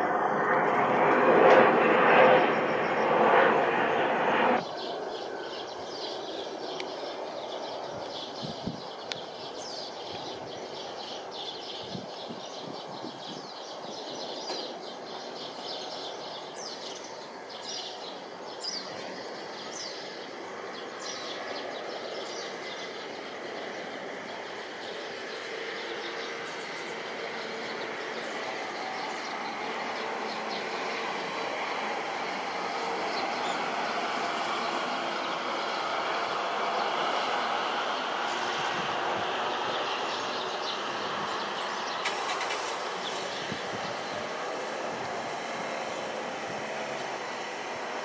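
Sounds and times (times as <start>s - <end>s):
jet engine noise: 0.0s - 48.0s
small birds chirping: 2.1s - 48.0s.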